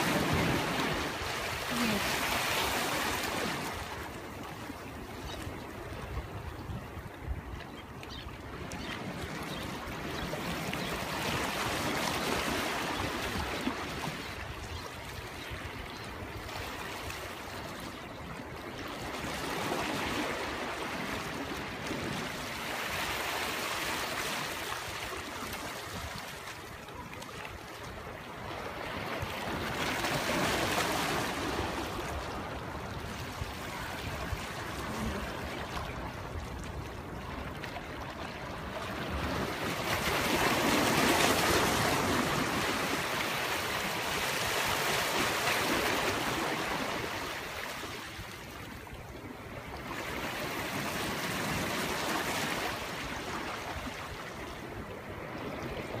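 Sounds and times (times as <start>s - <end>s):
small waves washing in: 0.0s - 7.2s, 16.2s - 56.0s.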